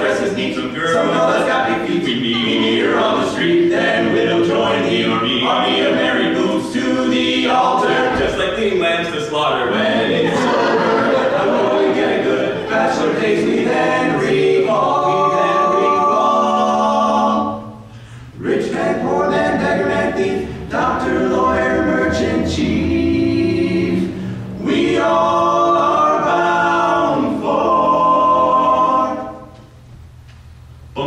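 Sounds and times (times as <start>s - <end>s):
men singing in harmony: 0.0s - 8.5s, 9.6s - 17.7s, 18.4s - 29.5s.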